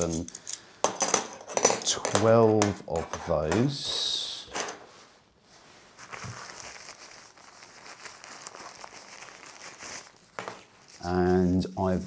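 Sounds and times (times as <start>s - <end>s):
fabric bag rustling: 5.0s - 11.5s.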